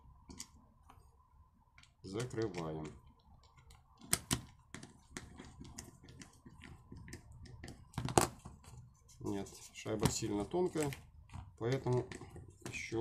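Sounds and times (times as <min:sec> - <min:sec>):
plastic parts knocking: 0:02.1 - 0:08.8, 0:09.9 - 0:13.0.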